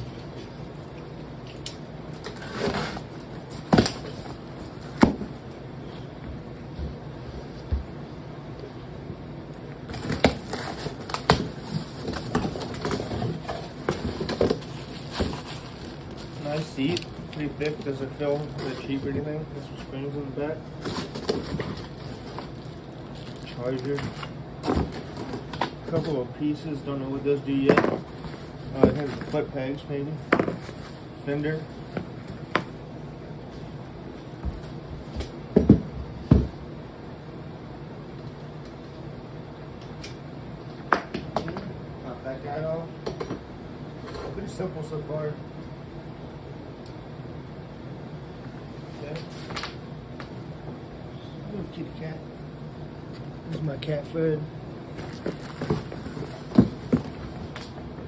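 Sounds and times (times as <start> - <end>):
plastic wrapping crinkling: 13.8 - 18.8, 20.9 - 24.3.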